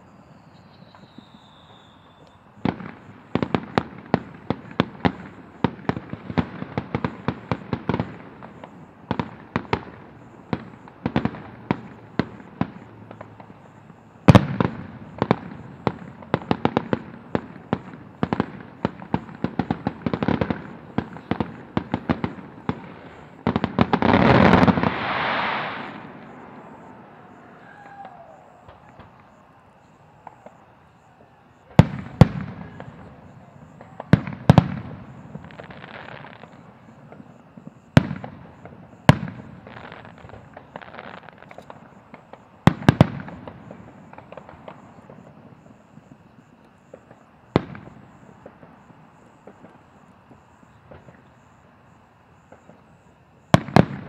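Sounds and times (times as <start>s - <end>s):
fireworks crackling pops: 0.7s - 51.6s, 52.4s - 54.0s
firework bang: 21.0s - 29.4s
aerial shell burst: 24.3s - 28.3s.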